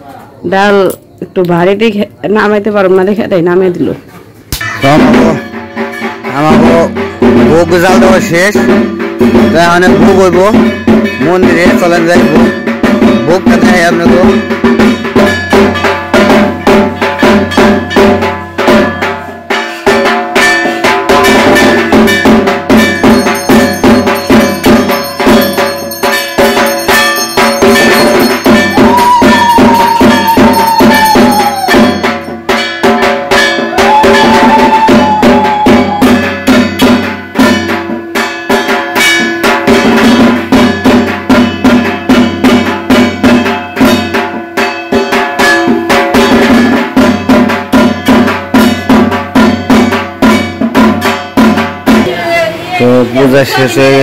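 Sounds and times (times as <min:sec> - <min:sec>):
drums beaten in fast rhythm: 0:01.6 - 0:54.0
bell or gong clanging: 0:04.6 - 0:52.1.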